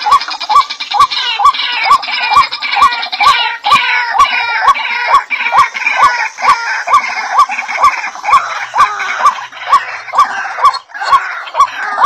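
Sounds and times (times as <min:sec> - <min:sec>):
waterhen calling: 0:00.0 - 0:12.0.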